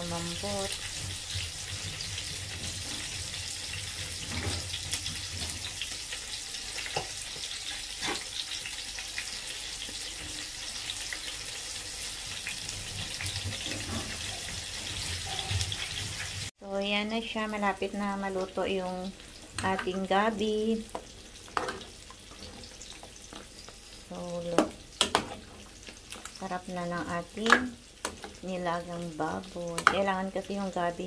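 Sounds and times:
broth boiling and bubbling: 0.0 - 16.6.

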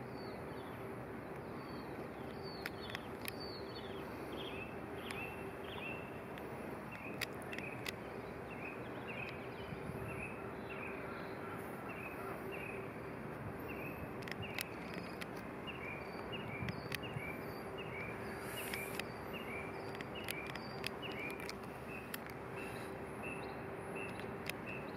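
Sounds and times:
faint steady hum: 0.0 - 24.9
faint clicks: 1.2 - 9.7, 13.6 - 23.0, 24.0 - 24.9.

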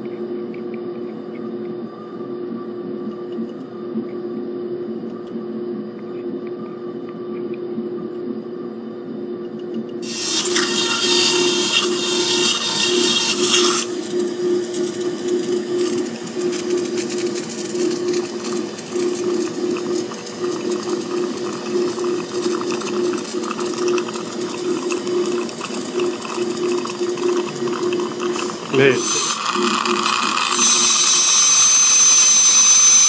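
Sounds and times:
suction aspirator humming and slurping: 9.5 - 33.0
dental drill whine and hiss: 10.0 - 19.4, 28.3 - 33.0.

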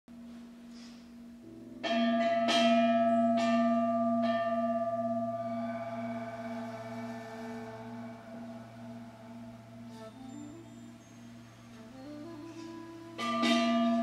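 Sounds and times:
low steady drone: 0.2 - 14.0
bell tones ringing: 1.8 - 14.0.

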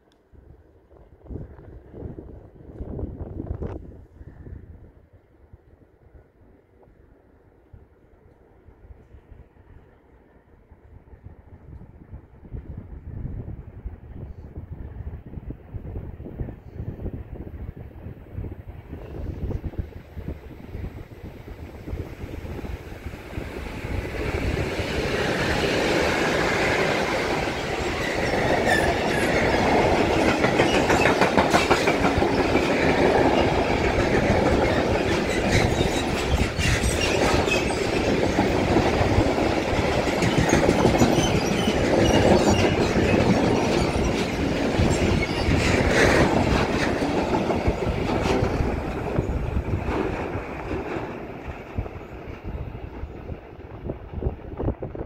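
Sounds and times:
freight train passing: 0.0 - 55.0
wheels clicking over rail joints: 25.2 - 51.6.

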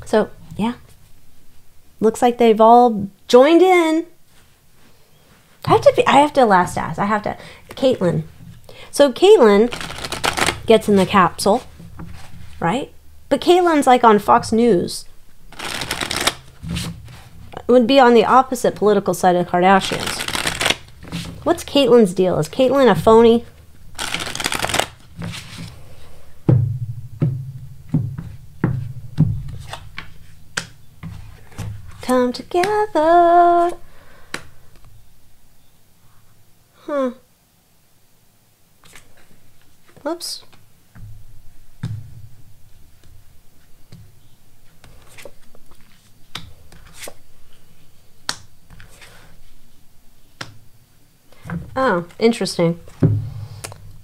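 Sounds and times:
cards snapping and slapping: 9.7 - 10.6, 15.5 - 16.6, 19.8 - 21.2, 24.0 - 25.6
low drum-like thuds: 26.4 - 29.5, 53.0 - 53.6.

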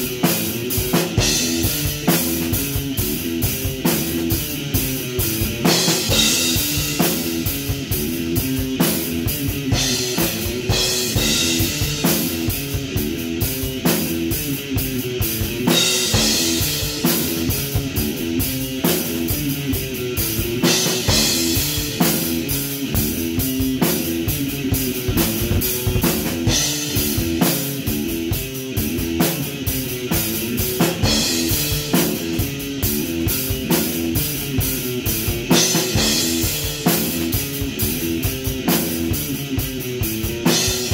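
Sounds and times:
drum kit: 0.0 - 40.9
electric guitar rock riff: 0.0 - 40.9.

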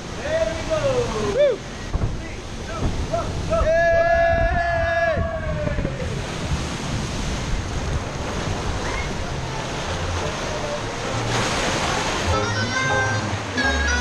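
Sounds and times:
steady rushing noise: 0.0 - 14.0
music: 9.1 - 14.0.

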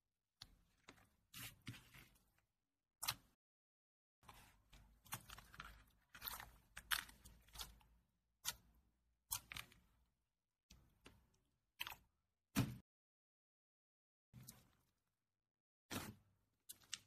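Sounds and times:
slime squishing and crackling: 4.3 - 8.6.

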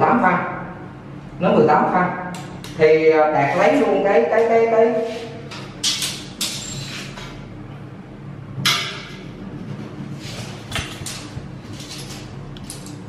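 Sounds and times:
scraping against tiled wall: 9.5 - 12.8.

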